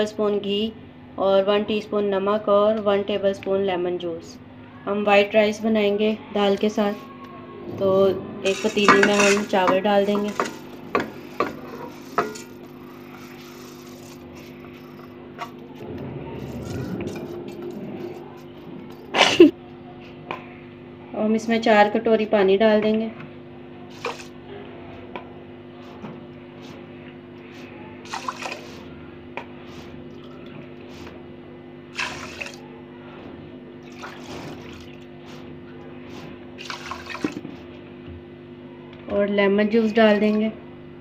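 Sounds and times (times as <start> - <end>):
steady low hum: 0.0 - 41.0
water splashing into a pot: 28.1 - 28.7, 31.9 - 32.6, 36.6 - 37.4.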